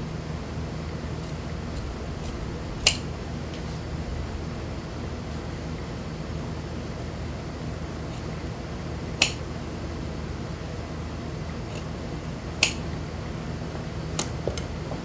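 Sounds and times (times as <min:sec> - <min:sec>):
low steady hum: 0:00.0 - 0:15.0
shears snipping fabric: 0:01.2 - 0:03.7, 0:12.6 - 0:12.9.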